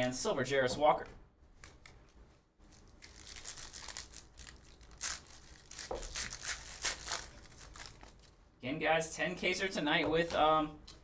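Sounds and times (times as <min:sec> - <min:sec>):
card pack wrappers crinkling: 0:02.6 - 0:08.4.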